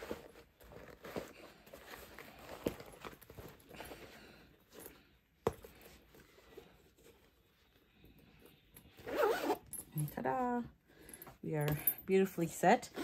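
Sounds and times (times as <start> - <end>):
fabric purse rustling: 0.0 - 7.8.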